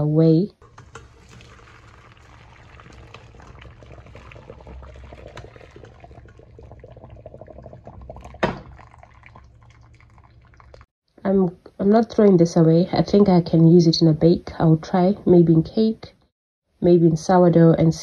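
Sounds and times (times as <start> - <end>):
liquid dripping: 0.6 - 10.9
liquid splashing through sieve: 0.6 - 10.9.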